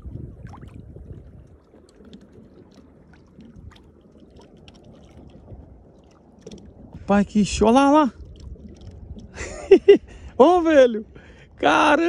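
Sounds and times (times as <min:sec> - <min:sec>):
light water slaps: 0:00.0 - 0:07.1, 0:08.0 - 0:09.6
low wind rumble: 0:00.0 - 0:12.0
small waves lapping against hull: 0:00.0 - 0:12.0.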